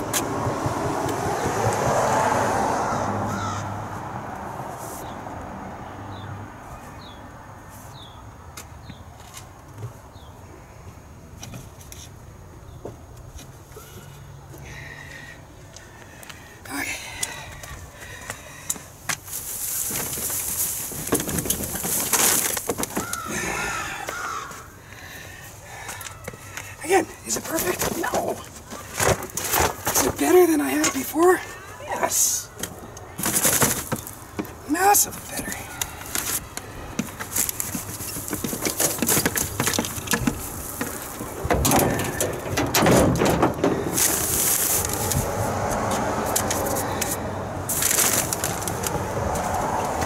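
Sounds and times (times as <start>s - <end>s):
grass clippings rustling into bin: 19.2s - 23.4s, 33.2s - 45.5s, 47.7s - 49.6s
paper and plastic crackling: 19.3s - 23.3s, 33.2s - 34.3s, 35.2s - 45.4s, 46.3s - 50.0s.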